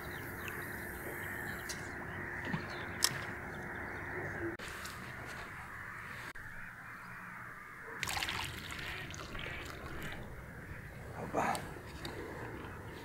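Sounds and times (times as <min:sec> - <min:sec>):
rough rustling: 0:04.6 - 0:06.4.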